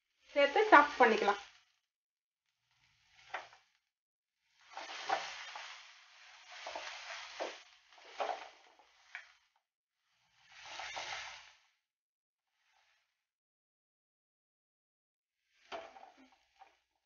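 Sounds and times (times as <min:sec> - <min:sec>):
onions sizzling in hot oil: 0:00.0 - 0:01.7, 0:02.6 - 0:03.8, 0:04.4 - 0:11.8, 0:15.4 - 0:16.8
spatula scraping pan: 0:04.5 - 0:09.4, 0:10.3 - 0:11.6.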